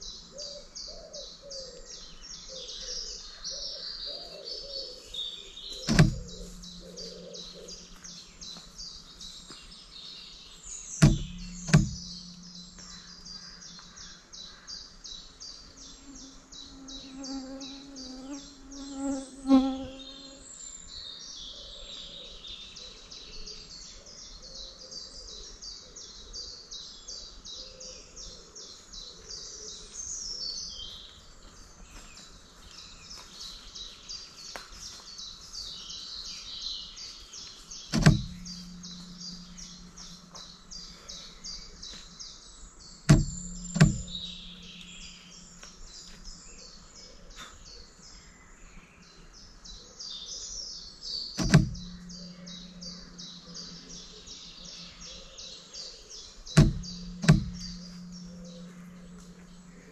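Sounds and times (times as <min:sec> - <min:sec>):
sharp clicks: 0:05.8 - 0:07.0, 0:11.0 - 0:13.0, 0:37.9 - 0:40.4, 0:43.1 - 0:44.9, 0:51.4 - 0:53.0, 0:56.6 - 0:59.8
low steady hum: 0:05.8 - 0:09.8, 0:10.6 - 0:14.4, 0:37.9 - 0:46.5, 0:51.4 - 0:55.2, 0:56.3 - 0:59.9.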